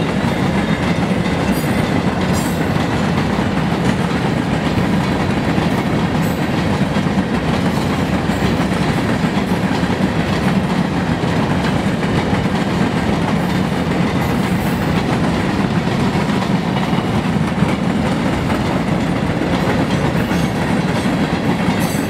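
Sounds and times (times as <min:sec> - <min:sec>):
train wheels rolling on rails: 0:00.0 - 0:22.0.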